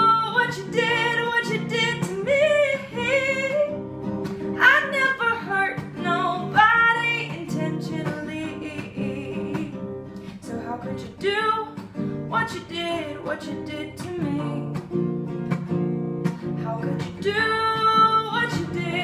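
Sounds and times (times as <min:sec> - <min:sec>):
acoustic guitar strumming: 0:00.0 - 0:19.0
person singing: 0:04.6 - 0:09.8.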